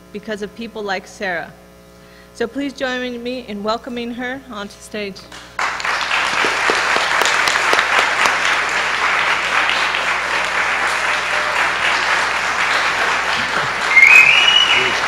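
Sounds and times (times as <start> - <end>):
audience applauding: 5.6 - 15.0.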